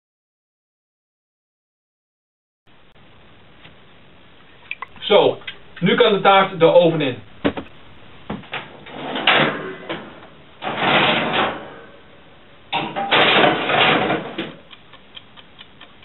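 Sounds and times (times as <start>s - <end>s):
cake tin scraping and clunking: 8.5s - 12.1s, 12.8s - 14.6s
mechanical kitchen timer ticking: 14.6s - 16.0s.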